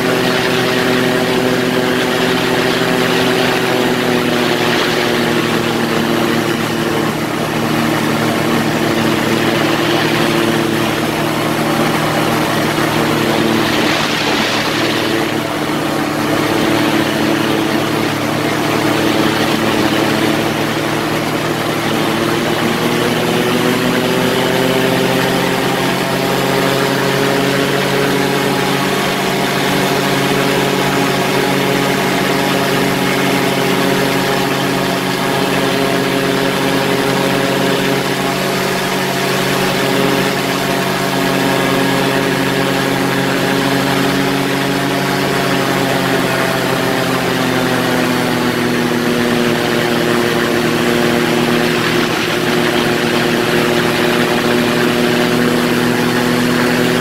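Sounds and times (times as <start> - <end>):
rush of noise: 0.0 - 24.4, 47.0 - 57.0
ultralight engine and propeller drone: 0.0 - 57.0.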